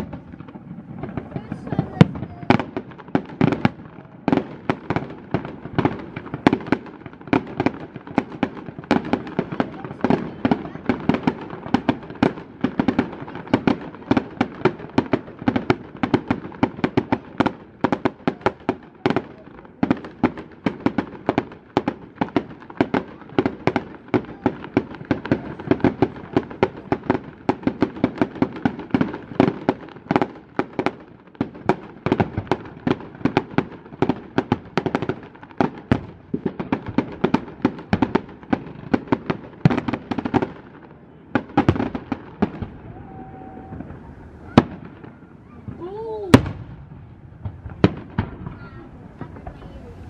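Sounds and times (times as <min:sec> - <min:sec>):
fireworks bursting and crackling: 0:00.0 - 0:50.0.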